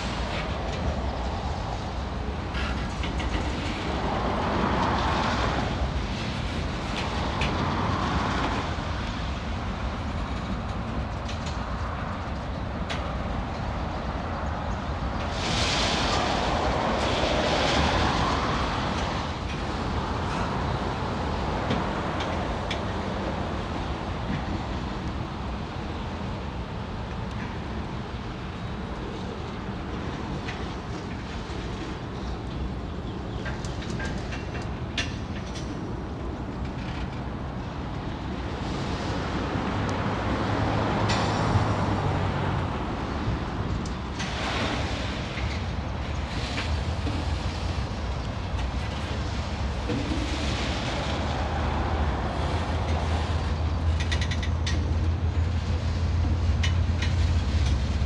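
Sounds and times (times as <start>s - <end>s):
train wheels rumbling on rails: 0.0s - 58.0s
clicks over rail joints: 43.2s - 58.0s.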